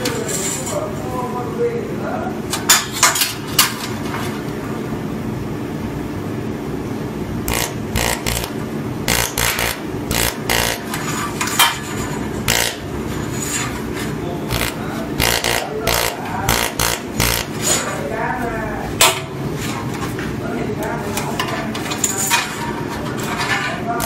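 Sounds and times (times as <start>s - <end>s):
welding machine humming: 7.3s - 17.9s
sharp weld pulse snaps: 7.5s - 8.5s, 9.1s - 10.8s, 14.5s - 17.5s.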